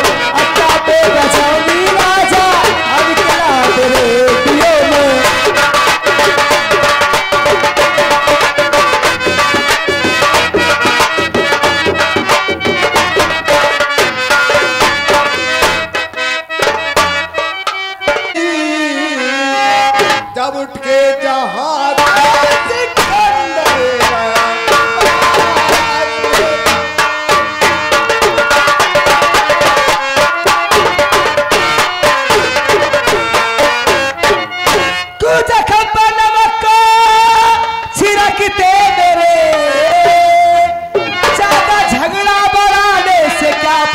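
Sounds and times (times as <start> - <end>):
man singing through microphone: 0.0 - 5.6, 18.3 - 26.9, 35.2 - 43.9
drums: 0.0 - 18.5, 21.8 - 43.9
harmonium: 0.0 - 43.9.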